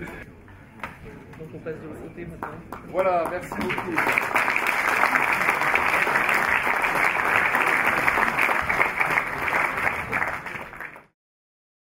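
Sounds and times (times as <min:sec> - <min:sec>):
audience applauding: 0:03.0 - 0:11.1.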